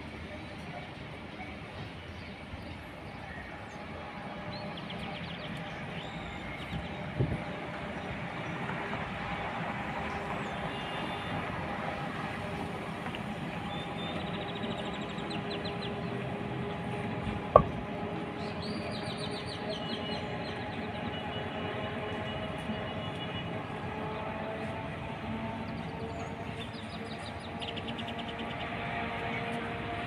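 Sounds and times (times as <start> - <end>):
distant diesel locomotive rumble: 0.0 - 30.0
sharp knock: 17.6 - 17.8.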